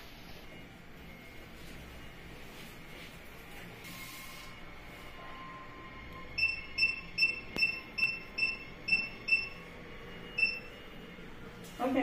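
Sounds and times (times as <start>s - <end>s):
short high keypad beeps: 6.4s - 9.6s, 10.4s - 10.7s.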